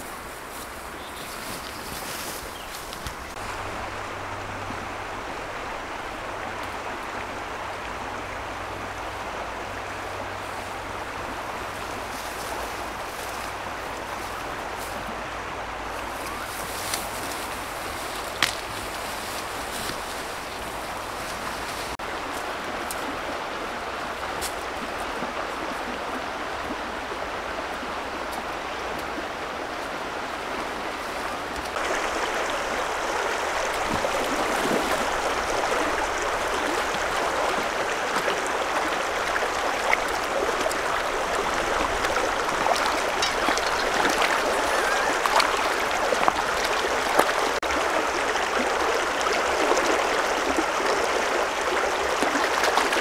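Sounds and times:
shallow stream rushing: 0:00.0 - 0:53.0.

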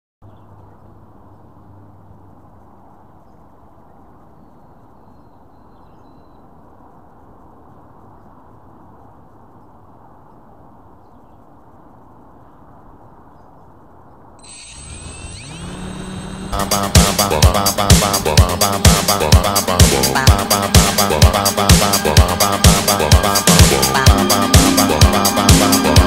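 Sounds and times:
low outdoor background noise: 0:00.2 - 0:16.6
faint bird chirps: 0:02.6 - 0:06.6.

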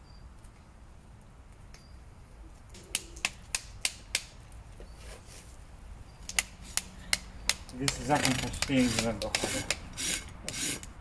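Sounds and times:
hammer tapping on horseshoe: 0:06.3 - 0:09.8.

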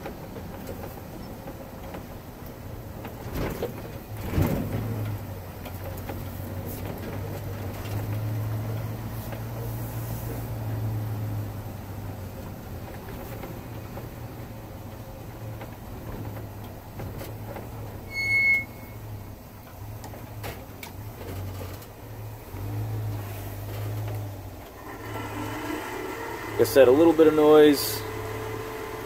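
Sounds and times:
engine drone inside cab: 0:00.0 - 0:29.0
short high-pitched beep: 0:18.1 - 0:19.0.

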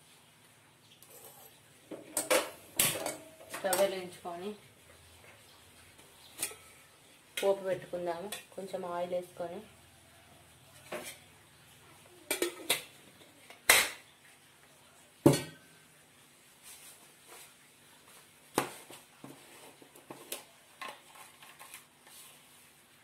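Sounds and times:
metal vessels clanking: 0:01.1 - 0:03.9.

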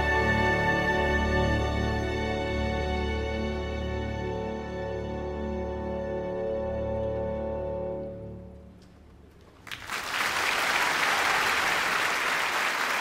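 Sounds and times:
audience applause: 0:09.6 - 0:13.0.

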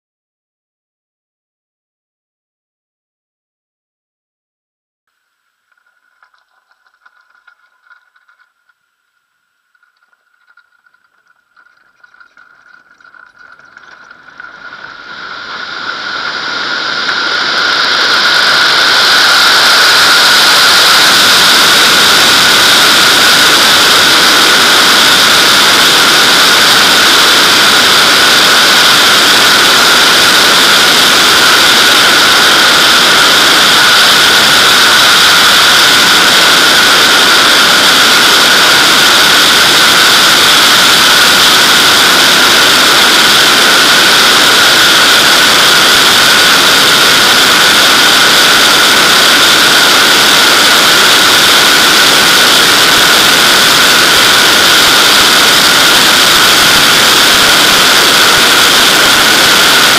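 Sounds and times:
airflow rushing over camera: 0:05.6 - 0:25.7.

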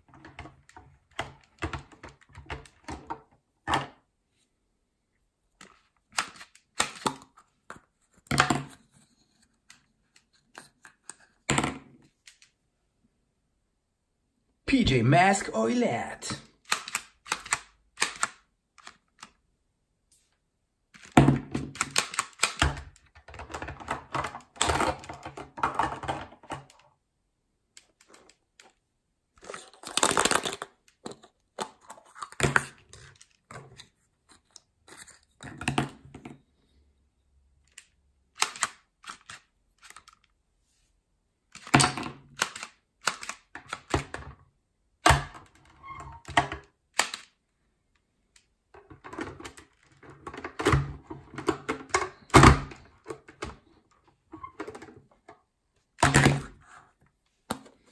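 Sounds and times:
plastic toys clicking and clattering: 0:00.0 - 0:04.0, 0:05.6 - 0:12.5, 0:16.3 - 0:19.4, 0:20.9 - 0:26.9, 0:27.7 - 0:28.8, 0:29.4 - 0:36.2, 0:37.6 - 0:40.4, 0:41.5 - 0:44.4, 0:45.0 - 0:47.4, 0:48.3 - 0:56.8.

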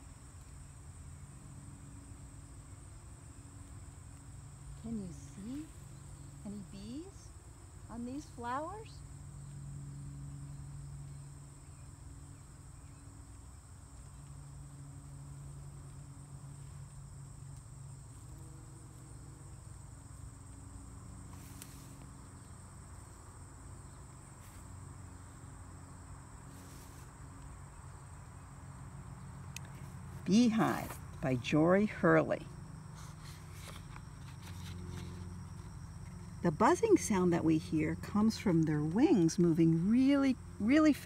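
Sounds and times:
high-pitched insect chorus: 0:00.0 - 0:41.0
bumblebee buzzing: 0:14.4 - 0:41.0.

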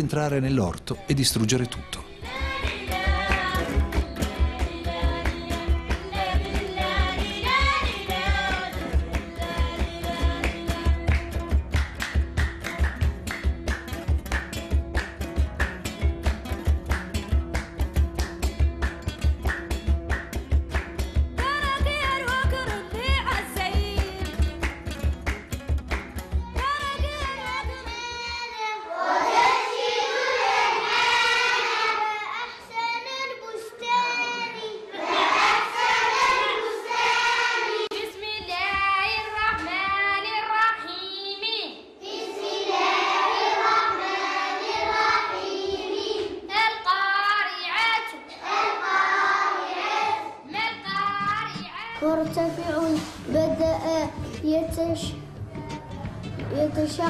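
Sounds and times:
children singing together: 0:02.0 - 0:11.2, 0:27.0 - 0:38.6, 0:42.0 - 0:57.0.

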